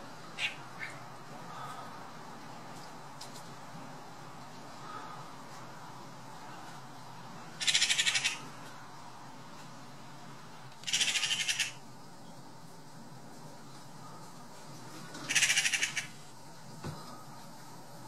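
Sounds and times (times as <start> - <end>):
magpies chattering: 0.4 - 1.0, 7.6 - 8.5, 10.8 - 11.8, 15.2 - 16.2.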